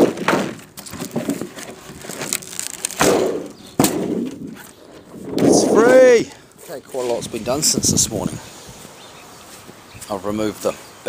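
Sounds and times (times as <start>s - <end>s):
plastic sheet tearing free: 0.8s - 3.6s
sharp crack: 2.0s - 6.2s.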